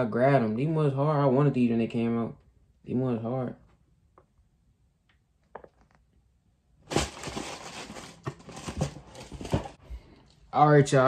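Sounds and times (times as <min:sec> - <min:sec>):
tissue paper crinkling: 0:06.9 - 0:09.8.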